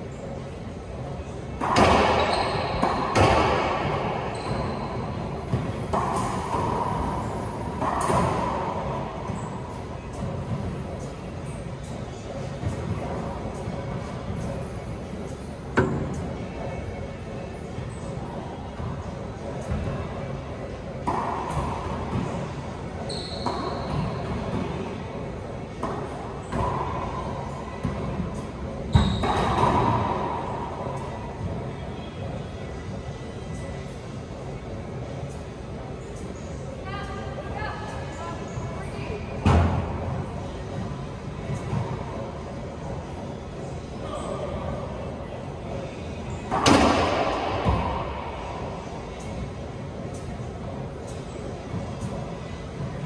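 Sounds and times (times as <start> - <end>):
racquetball hits echoing: 1.6 - 9.6, 28.9 - 30.8, 46.5 - 48.6.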